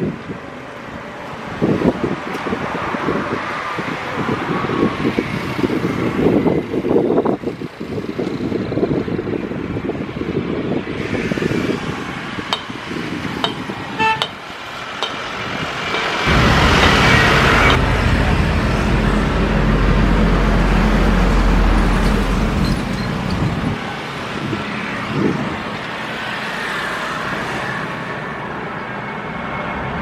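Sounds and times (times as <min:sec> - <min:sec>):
jet engines roaring: 0:10.9 - 0:30.0
horn-like toots: 0:14.0 - 0:14.4
deep rumble: 0:16.1 - 0:22.7.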